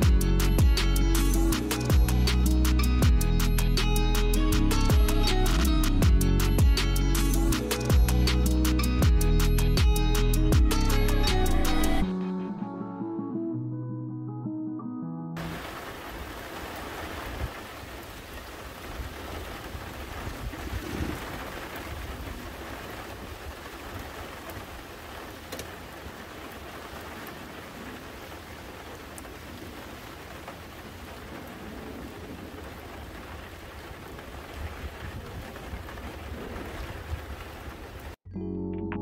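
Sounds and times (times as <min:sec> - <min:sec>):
rain on grass and trees: 0:00.0 - 0:11.5, 0:15.4 - 0:38.2
raindrop ticks: 0:15.4 - 0:38.2.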